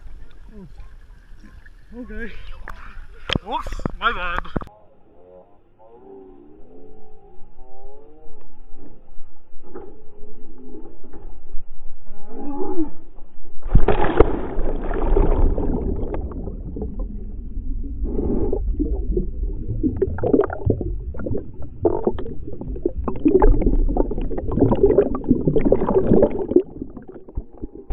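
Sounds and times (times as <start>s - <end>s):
underwater gurgling and bubbles: 13.2s - 27.9s
body splashing into water: 13.6s - 17.1s, 19.8s - 27.8s.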